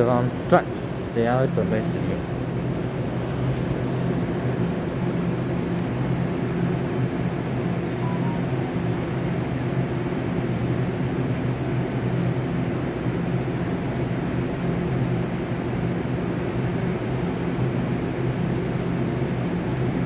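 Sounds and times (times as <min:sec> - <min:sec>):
train equipment humming: 0:00.0 - 0:12.4.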